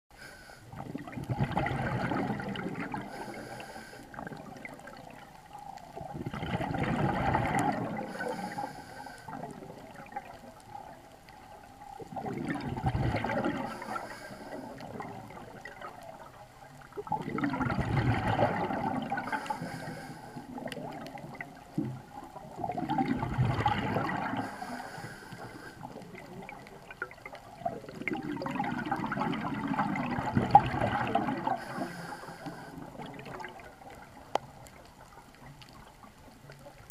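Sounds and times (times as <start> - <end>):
high hiss of inhaling: 0.2 - 0.7, 3.1 - 4.2, 8.1 - 9.4, 13.7 - 14.8, 19.3 - 20.5, 24.4 - 25.9, 31.6 - 32.8
gurgling exhaled bubbles: 0.7 - 36.9.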